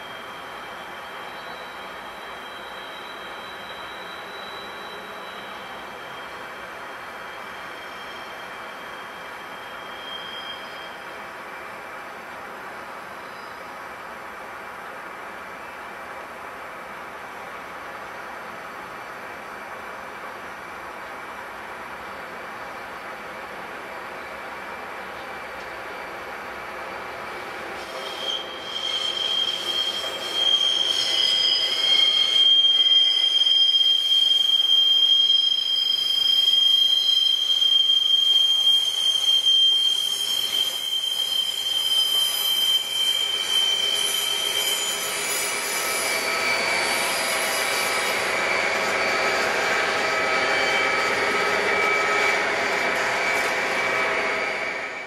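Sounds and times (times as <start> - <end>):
train wheels squealing: 0.0 - 12.0, 13.0 - 14.0, 24.1 - 55.0.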